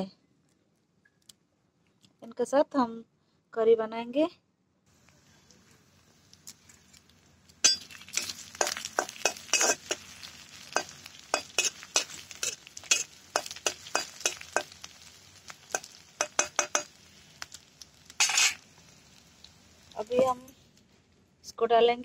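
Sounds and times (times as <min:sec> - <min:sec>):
faint sizzle of frying: 0:04.9 - 0:21.5
metal spatula scraping a pan: 0:07.6 - 0:17.0, 0:18.1 - 0:18.7.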